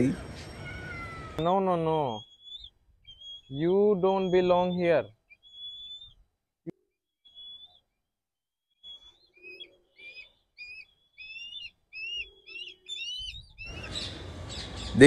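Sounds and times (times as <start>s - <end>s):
bird of prey whistled calls: 2.1s - 6.1s, 7.2s - 7.8s, 8.8s - 14.1s.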